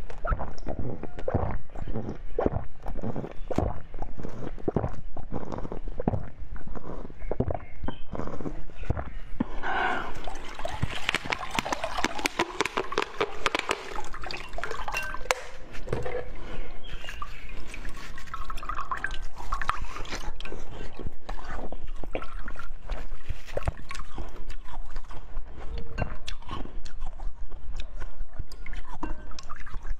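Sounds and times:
plastic bottle crinkling: 0:10.1 - 0:20.3.

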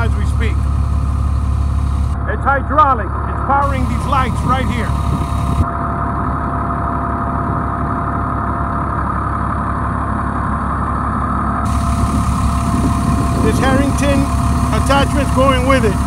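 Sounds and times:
generator thin constant tone: 0:00.0 - 0:06.2, 0:11.6 - 0:16.0
diesel engine idling: 0:00.0 - 0:16.0.

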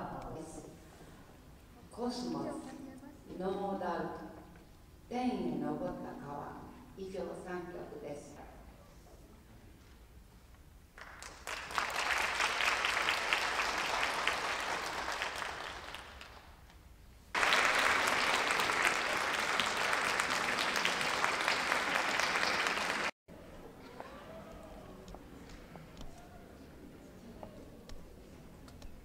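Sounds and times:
audience clapping: 0:11.0 - 0:16.7, 0:17.4 - 0:23.2.

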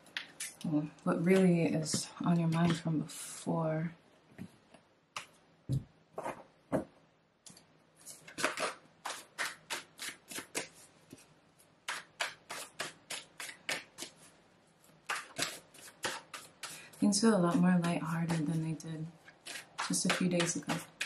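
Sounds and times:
cards being shuffled by hand: 0:08.0 - 0:11.3.

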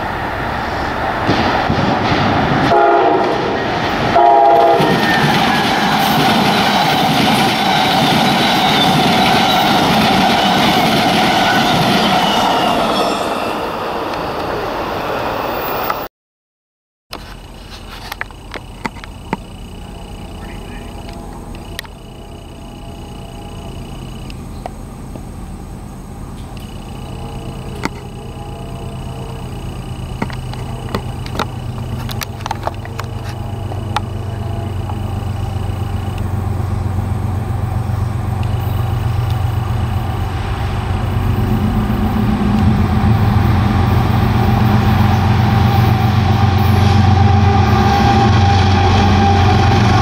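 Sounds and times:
diesel locomotive engine rumble: 0:00.0 - 0:16.1, 0:17.1 - 0:50.0
train wheels rushing on rails: 0:00.0 - 0:16.1, 0:17.2 - 0:50.0
thin high whine: 0:17.1 - 0:50.0.

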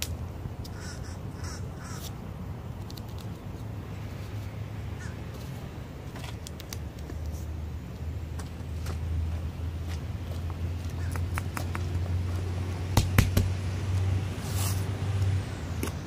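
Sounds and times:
crow cawing: 0:00.7 - 0:02.0, 0:05.0 - 0:05.2.

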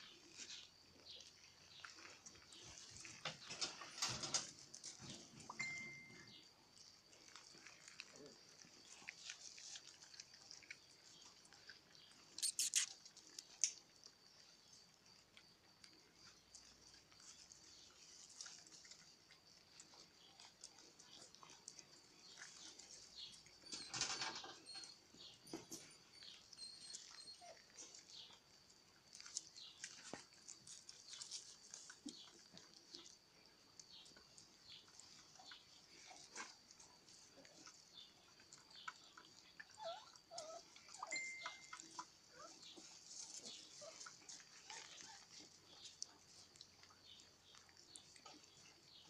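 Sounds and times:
puppies chewing food: 0:00.0 - 0:49.0
thin steady high tone: 0:05.6 - 0:06.3, 0:41.0 - 0:41.9
puppy squeaks: 0:12.4 - 0:12.9, 0:39.8 - 0:42.6.

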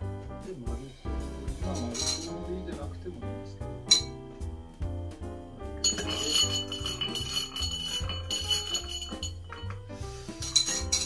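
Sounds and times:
background music with bass line: 0:00.0 - 0:11.0
ice tinkling against glass: 0:01.7 - 0:02.4, 0:05.8 - 0:09.7, 0:10.4 - 0:11.0.

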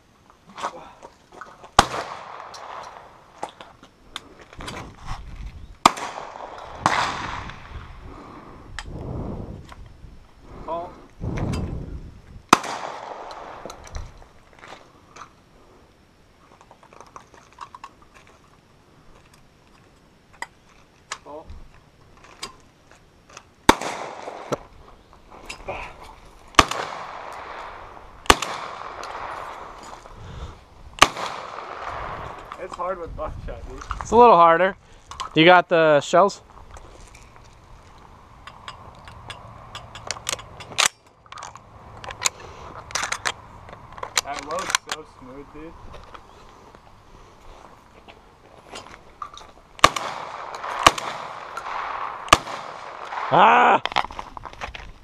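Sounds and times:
shotgun shots echoing: 0:01.8 - 0:03.4, 0:05.8 - 0:07.8, 0:12.5 - 0:13.8, 0:23.7 - 0:24.7, 0:26.5 - 0:29.8, 0:31.0 - 0:32.6, 0:49.8 - 0:53.6.

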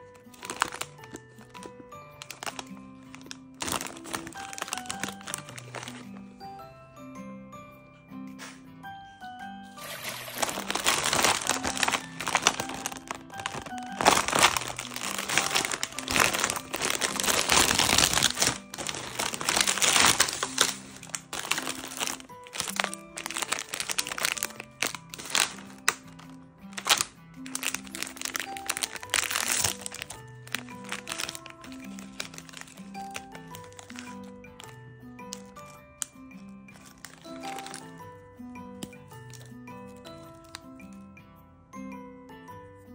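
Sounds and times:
snack wrappers crinkling: 0:00.0 - 0:06.2, 0:09.8 - 0:38.1, 0:38.8 - 0:41.0.

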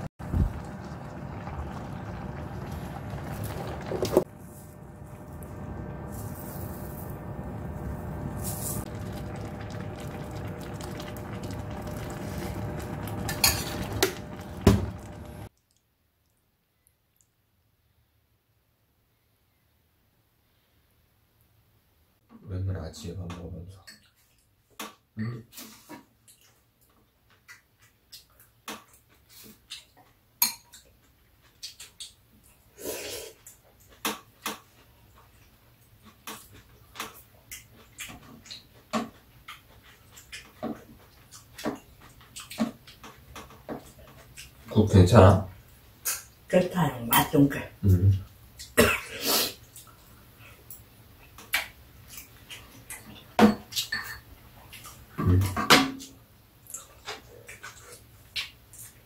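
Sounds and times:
slurping soup: 0:00.2 - 0:15.5.

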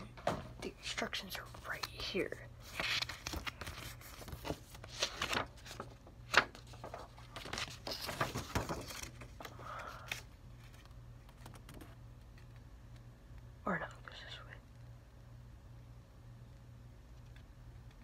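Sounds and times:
cardboard and paper rustling: 0:00.2 - 0:11.9.

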